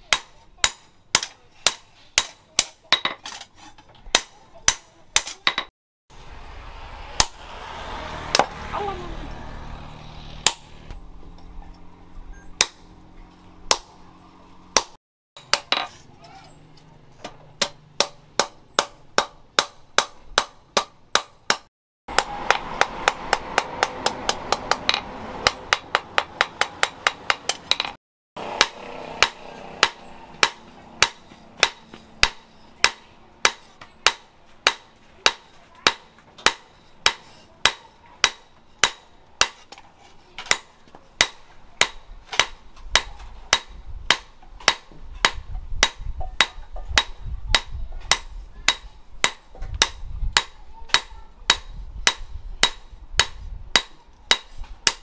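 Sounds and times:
hammer striking steel on anvil: 0.1s - 3.2s, 8.3s - 8.6s, 10.4s - 10.8s, 12.6s - 13.0s, 17.2s - 39.8s, 40.5s - 55.0s.

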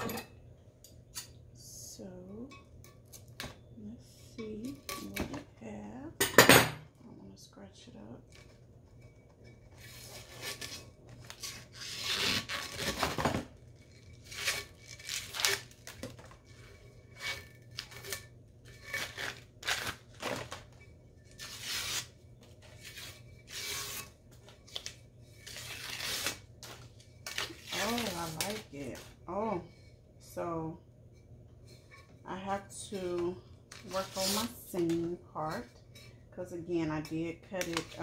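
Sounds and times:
paper and plastic ripping and crinkling: 10.2s - 16.7s, 18.8s - 20.7s, 24.6s - 28.8s.

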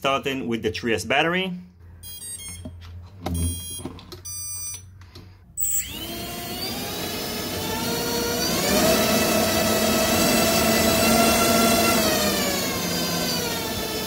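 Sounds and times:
short electronic beeps: 2.0s - 4.9s
electric motor whine: 5.7s - 14.0s.

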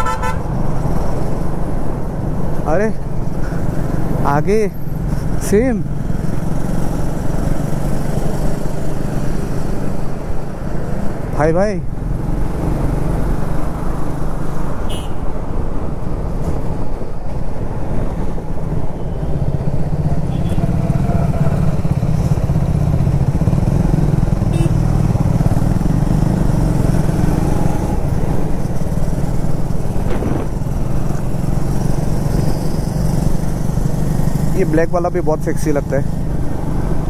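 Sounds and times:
motorcycle engine running: 19.8s - 27.6s.

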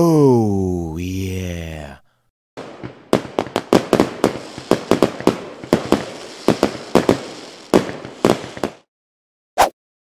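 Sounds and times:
firecracker bangs and crackling: 2.6s - 8.9s.

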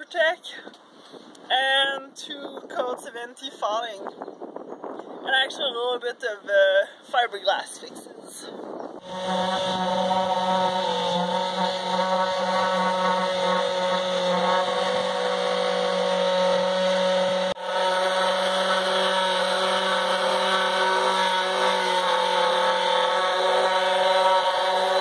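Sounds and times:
electric palm sander running: 9.0s - 25.0s.

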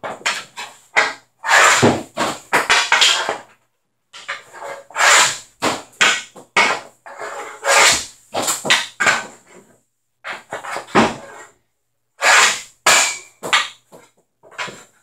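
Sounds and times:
stick knocking puck: 0.0s - 3.5s, 4.2s - 9.4s, 12.2s - 15.0s
hockey stick scraping on hard floor: 0.0s - 11.6s, 12.2s - 15.0s.

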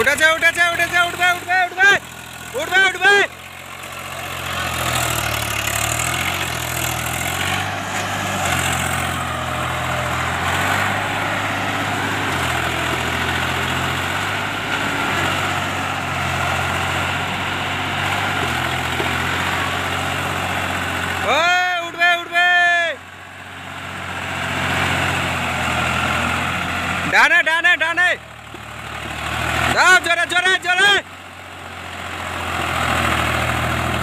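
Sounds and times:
wheels churning through mud: 0.0s - 21.4s
tractor diesel engine under load: 0.0s - 34.0s.

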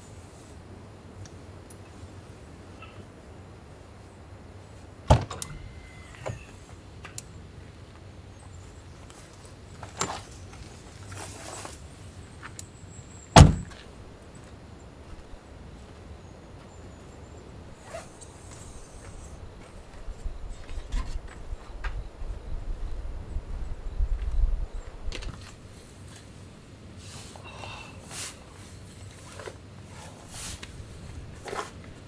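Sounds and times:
door latch click: 5.1s - 5.7s
car door shutting thunk: 5.1s - 6.5s, 13.4s - 13.8s.

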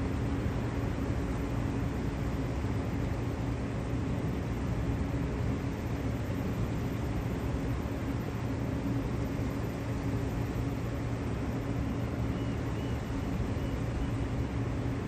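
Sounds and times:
distant plane engine drone: 0.0s - 15.0s.

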